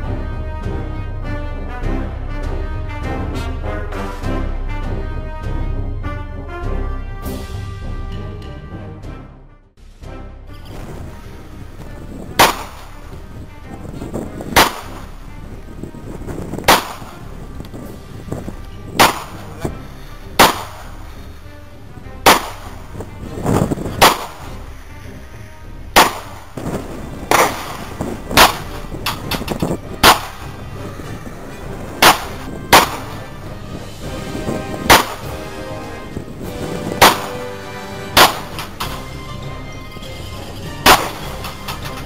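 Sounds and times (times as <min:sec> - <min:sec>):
pistol gunshots: 0:12.4 - 0:13.0, 0:14.6 - 0:15.1, 0:16.7 - 0:17.2, 0:19.0 - 0:19.6, 0:20.4 - 0:21.0, 0:22.2 - 0:22.8, 0:24.0 - 0:24.6, 0:26.0 - 0:26.5, 0:27.3 - 0:28.8, 0:30.0 - 0:30.5, 0:32.0 - 0:33.3, 0:34.9 - 0:35.4, 0:37.0 - 0:37.6, 0:38.2 - 0:39.0, 0:40.8 - 0:41.7.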